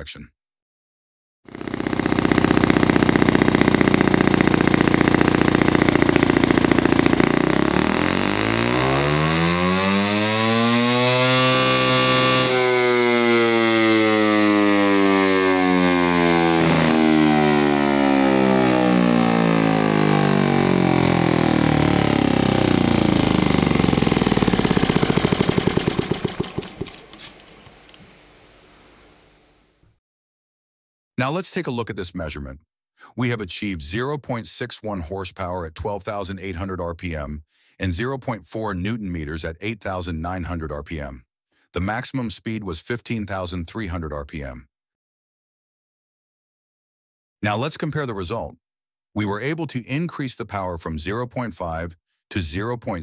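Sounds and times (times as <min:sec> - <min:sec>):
model engine running: 0:01.5 - 0:28.0.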